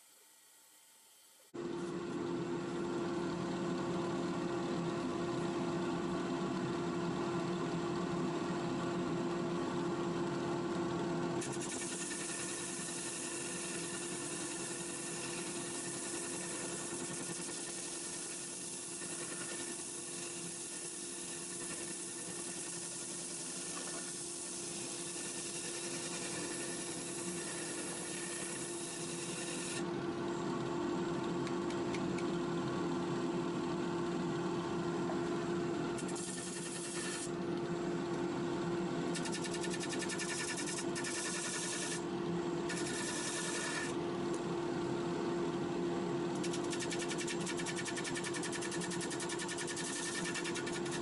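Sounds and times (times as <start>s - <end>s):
wood rasping on sanding disc: 42.7s - 43.9s, 46.7s - 51.0s.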